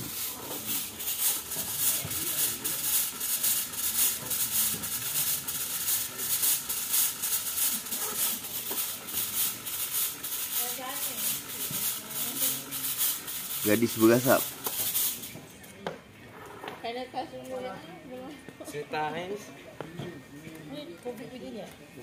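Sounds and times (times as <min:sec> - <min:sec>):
fog machine hissing in pulses: 0:00.0 - 0:15.4.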